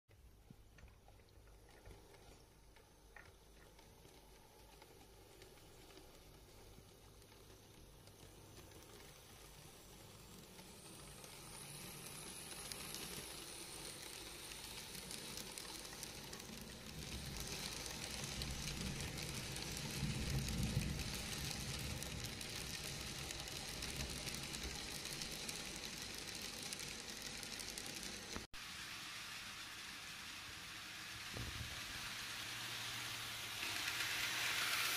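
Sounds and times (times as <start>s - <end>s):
model train wheels rattling: 2.0s - 34.9s
model train motor hum: 3.5s - 34.9s.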